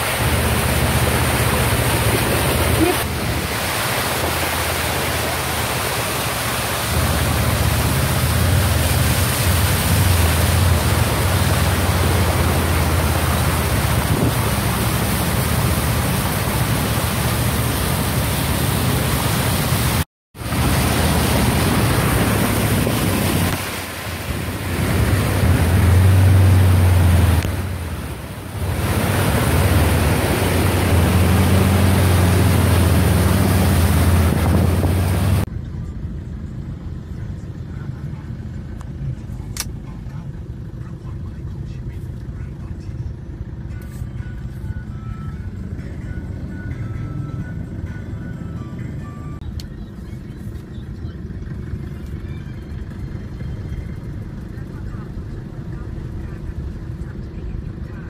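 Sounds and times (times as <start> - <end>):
water rushing on street: 0.0 - 35.5
low traffic rumble: 0.0 - 58.0.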